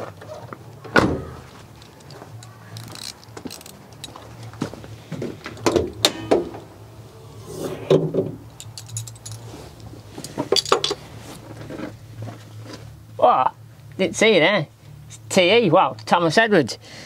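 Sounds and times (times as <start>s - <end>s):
steady low hum: 0.0s - 17.0s
metallic clinks and knocks: 1.8s - 4.2s, 8.5s - 9.6s, 10.2s - 11.0s.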